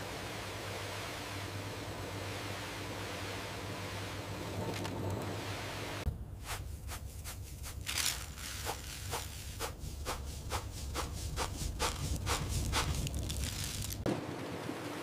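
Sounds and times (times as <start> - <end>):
seasoning shaker rattling: 6.5 - 14.0.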